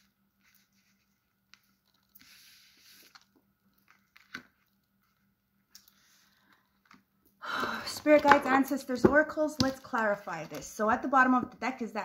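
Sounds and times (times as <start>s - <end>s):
cards sliding rustle: 0.4s - 4.6s.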